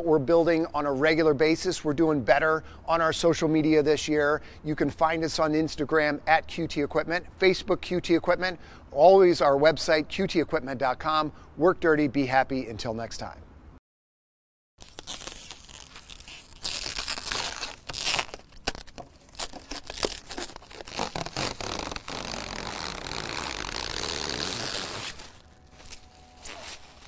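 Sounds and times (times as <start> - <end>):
plastic wrapping crinkling and tearing: 14.8 - 27.0.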